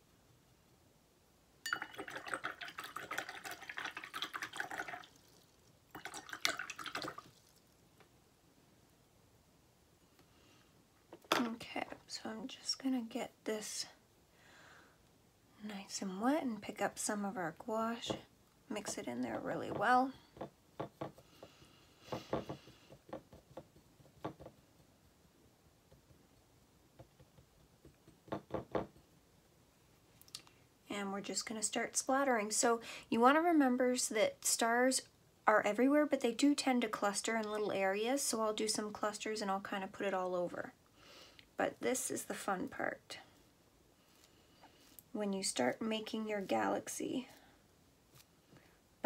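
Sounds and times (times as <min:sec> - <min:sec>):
paintbrush clinking in glass jar: 0:01.6 - 0:03.3
brush tapping and scraping ceramic dish: 0:18.8 - 0:25.2.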